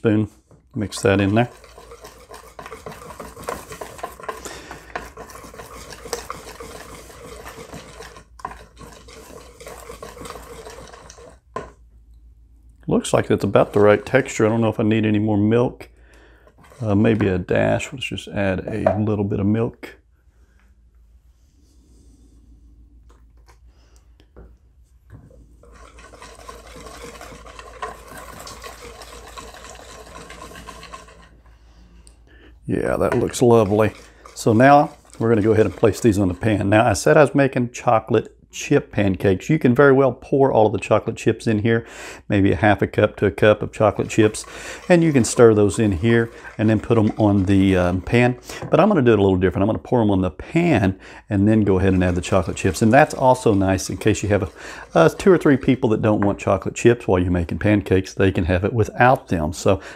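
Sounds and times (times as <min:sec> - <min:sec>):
wire whisk beating batter in bowl: 0:00.0 - 0:11.8, 0:13.0 - 0:15.0, 0:16.5 - 0:17.7, 0:25.2 - 0:31.7, 0:32.7 - 0:37.5, 0:42.4 - 0:49.6, 0:50.5 - 0:59.8.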